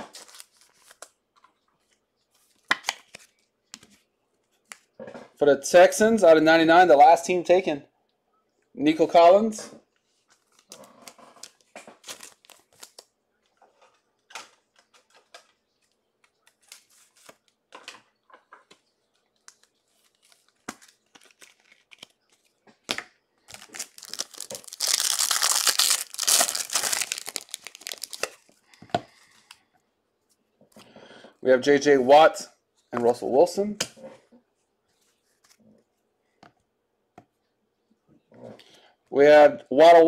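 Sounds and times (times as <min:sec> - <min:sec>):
plastic wrapper ripped open: 0:23.5 - 0:28.4
cards handled on a table: 0:35.0 - 0:35.6.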